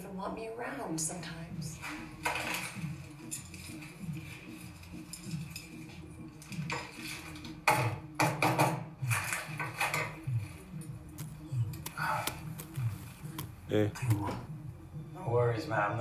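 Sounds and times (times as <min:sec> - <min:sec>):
plastic bag rustling: 0:11.1 - 0:14.7.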